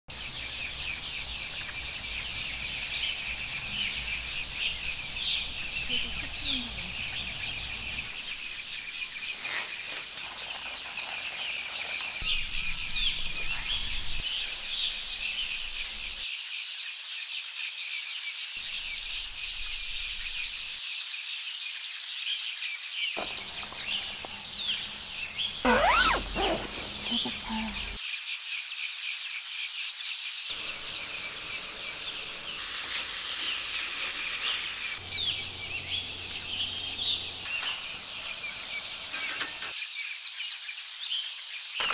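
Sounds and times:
bird chirps: 23.2s - 28.0s, 35.0s - 40.0s
high insect drone: 30.5s - 39.6s.

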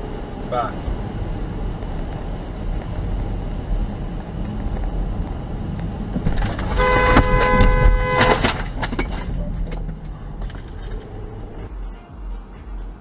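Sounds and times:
car driving road noise: 0.0s - 12.8s
car horn honking: 6.5s - 8.8s.

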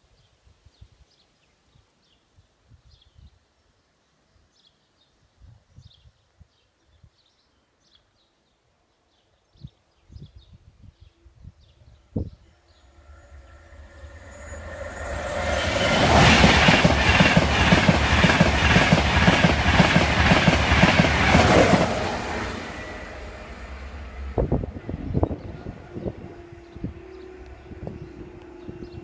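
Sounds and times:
train passing at speed: 12.2s - 29.0s.

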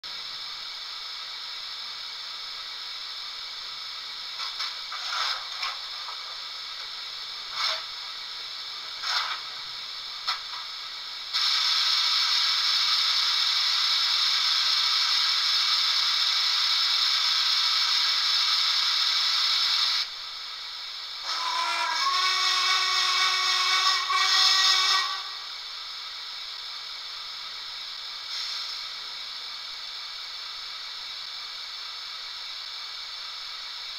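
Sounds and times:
background hiss: 0.0s - 33.9s
steam blowing off: 0.0s - 33.9s
steam whistle: 21.2s - 25.6s.

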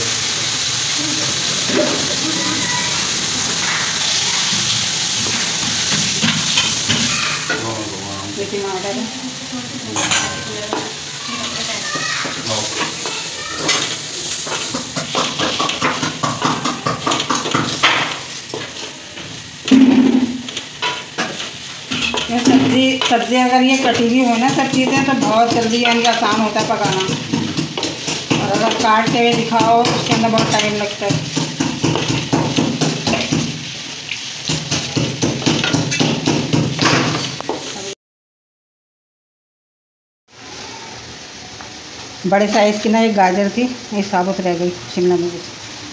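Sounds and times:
food frying: 0.0s - 38.0s, 40.3s - 45.9s
spatula scraping a pan: 9.9s - 19.3s, 20.4s - 33.8s.

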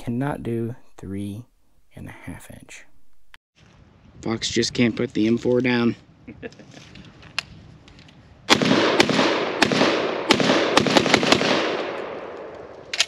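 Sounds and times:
shotgun shots echoing: 8.5s - 12.9s.

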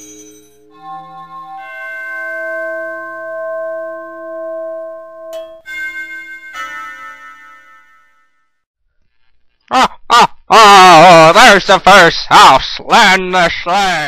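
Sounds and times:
bell-like chords: 0.0s - 8.4s.

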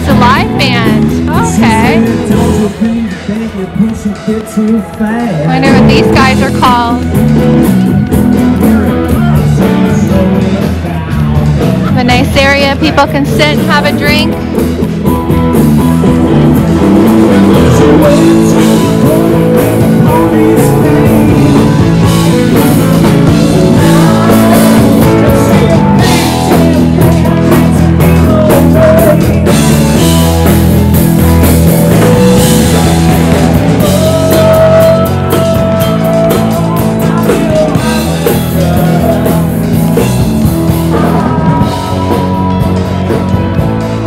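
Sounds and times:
person singing: 0.0s - 7.2s, 17.0s - 30.4s, 32.0s - 44.0s
drum kit: 0.0s - 44.0s
electric guitars: 0.0s - 44.0s.

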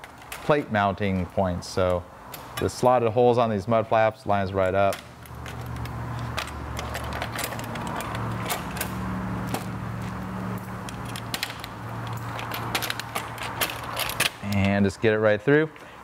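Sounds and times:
metal parts clicking and rattling: 4.9s - 14.8s.

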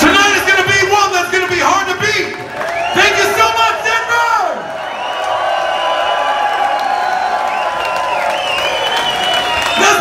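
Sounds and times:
crowd cheering and whooping: 4.3s - 10.0s.

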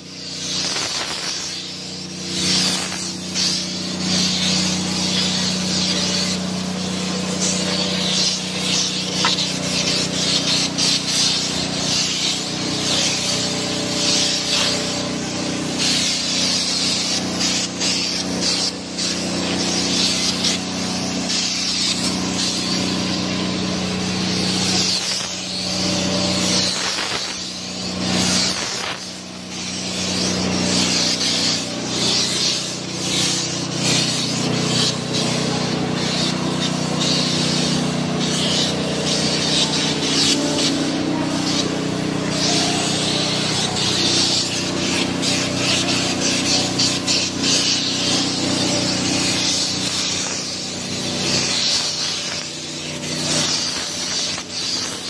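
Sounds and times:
paint spray gun hissing: 0.0s - 55.0s.

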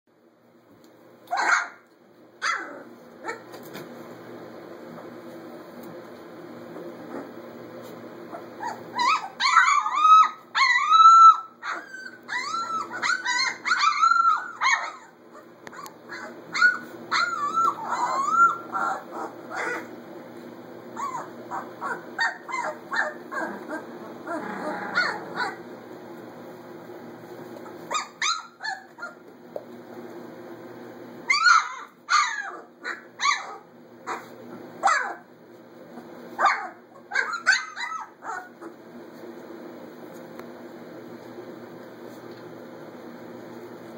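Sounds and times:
steady low hum: 0.2s - 43.9s
puppies whining and yipping: 8.2s - 19.9s, 20.9s - 25.7s, 27.6s - 29.2s, 31.2s - 35.2s, 36.0s - 38.8s.

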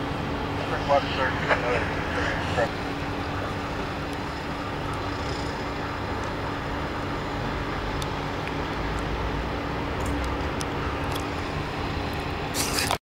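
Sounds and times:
vacuum truck running: 0.0s - 8.4s.

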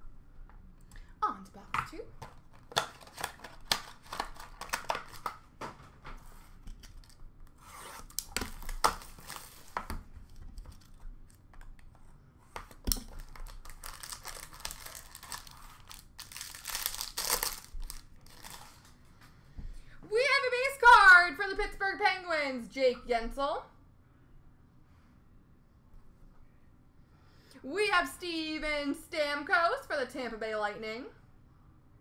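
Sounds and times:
cards rubbing and tapping: 2.2s - 18.7s
wrapping tearing and crinkling: 2.4s - 5.4s, 6.7s - 11.5s, 12.6s - 19.0s.

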